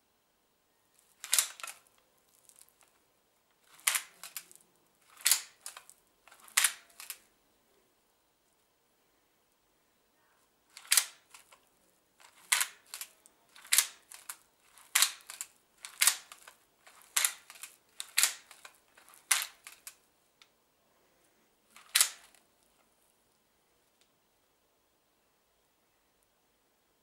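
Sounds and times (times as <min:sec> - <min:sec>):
plastic mechanism snapping clicks: 0:01.2 - 0:01.8, 0:05.1 - 0:07.2, 0:10.8 - 0:11.6, 0:12.2 - 0:20.0, 0:21.8 - 0:22.4.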